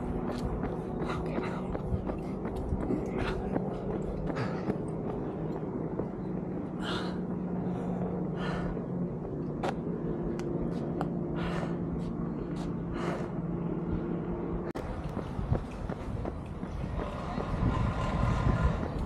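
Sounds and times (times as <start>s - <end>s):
steady low hum: 0.0s - 19.0s
person breathing heavily: 0.1s - 5.5s, 6.6s - 14.2s.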